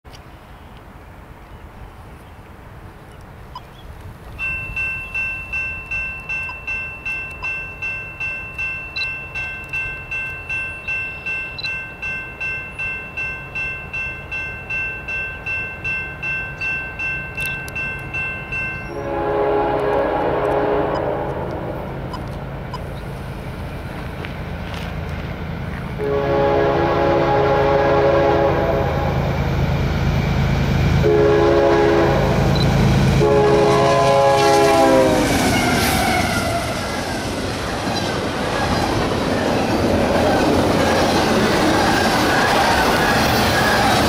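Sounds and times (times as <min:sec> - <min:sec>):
train rumbling: 0:00.4 - 0:44.0
railroad crossing bell ringing: 0:04.3 - 0:23.4
locomotive air horn: 0:18.9 - 0:21.7, 0:26.0 - 0:29.2, 0:31.0 - 0:36.8.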